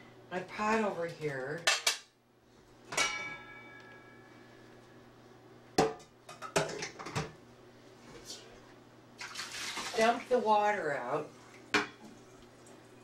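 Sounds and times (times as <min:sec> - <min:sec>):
metal pot clanking: 0:02.9 - 0:04.2
metal ringing: 0:02.9 - 0:04.5.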